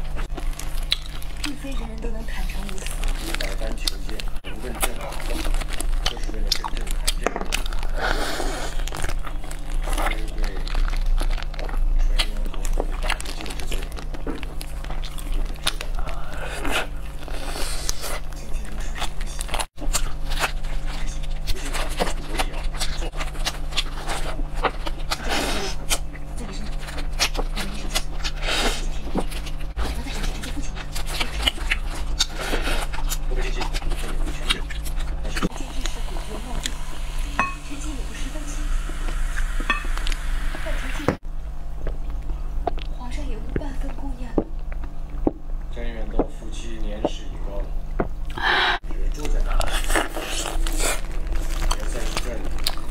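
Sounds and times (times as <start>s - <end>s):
plastic gloves rustling: 0.0s - 11.6s
crisp chicken eating crackles: 0.0s - 36.8s, 49.0s - 52.9s
steady low hum: 0.0s - 52.9s.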